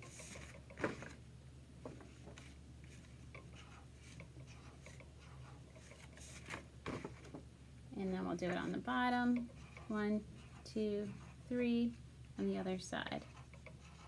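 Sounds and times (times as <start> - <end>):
marker scratching on paper: 0.0 - 0.6, 2.4 - 6.6, 8.2 - 12.0, 13.1 - 14.0.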